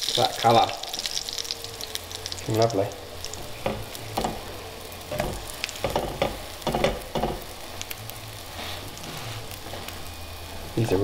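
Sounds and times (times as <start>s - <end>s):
pancakes sizzling in oil: 0.0s - 11.0s
spatula scraping and knocking pan: 3.5s - 4.5s, 5.1s - 7.5s.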